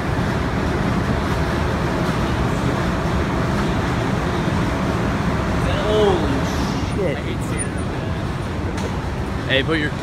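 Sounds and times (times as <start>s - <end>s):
low rumble of street traffic: 0.0s - 10.0s.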